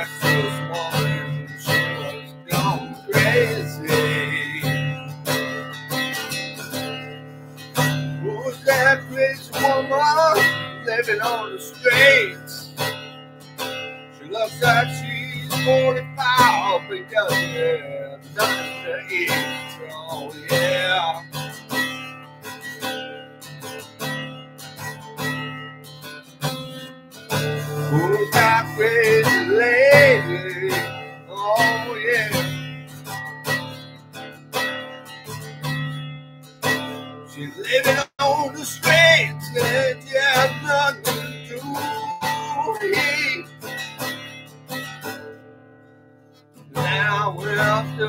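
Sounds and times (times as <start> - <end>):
man singing: 0.0 - 7.2, 7.8 - 12.9, 14.2 - 23.9, 27.3 - 33.2, 36.7 - 44.1, 46.7 - 48.0
acoustic guitar strumming: 0.0 - 48.0.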